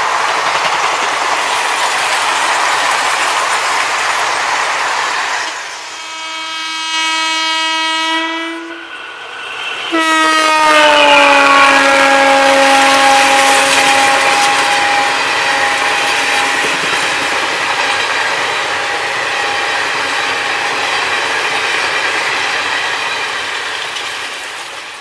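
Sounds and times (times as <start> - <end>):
train wheels clattering on rails: 0.0 - 5.7, 12.5 - 25.0
train horn: 5.5 - 9.0, 9.9 - 16.8.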